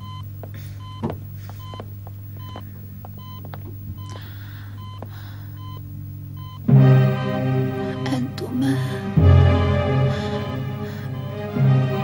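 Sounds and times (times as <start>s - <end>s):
patient monitor beeping: 0.0s - 12.0s
steady low hum: 0.0s - 12.0s
music: 6.4s - 12.0s.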